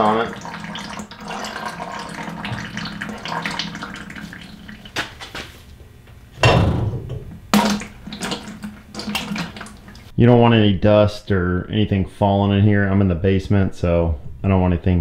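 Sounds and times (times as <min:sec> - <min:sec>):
oil trickling and dripping: 0:00.0 - 0:05.4, 0:07.5 - 0:10.1
steady low hum: 0:00.0 - 0:15.0
loud knocks: 0:06.4 - 0:07.8.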